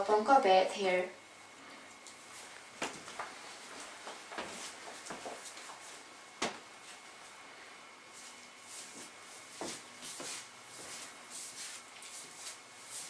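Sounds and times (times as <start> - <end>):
light footfalls: 2.2 - 7.0, 8.2 - 13.0
soft rustling: 8.1 - 13.0.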